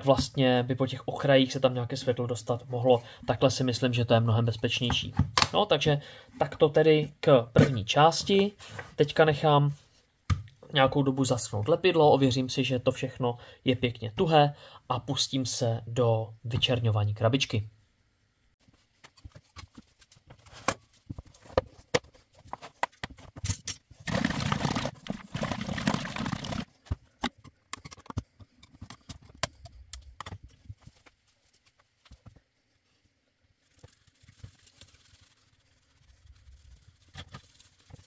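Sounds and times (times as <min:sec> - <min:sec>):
paintbrush brushing wood: 0:33.6 - 0:38.0.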